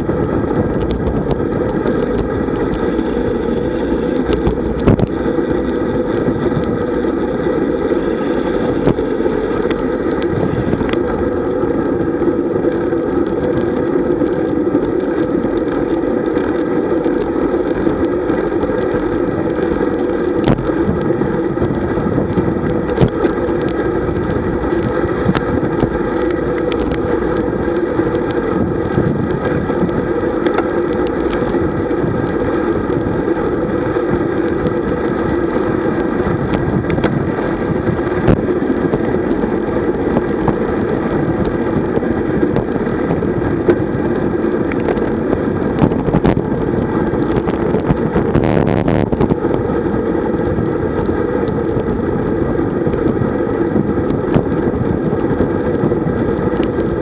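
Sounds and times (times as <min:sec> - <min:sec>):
faint steady hum: 0:00.0 - 0:57.0
road tyre noise: 0:00.0 - 0:57.0
wind rush on microphone: 0:00.0 - 0:57.0
short clicks from bumps: 0:00.7 - 0:05.6, 0:12.7 - 0:33.1.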